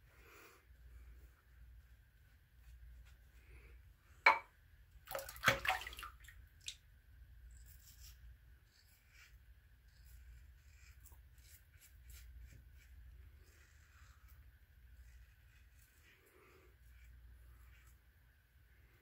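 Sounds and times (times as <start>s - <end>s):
water splashing in a sink: 5.0s - 6.9s.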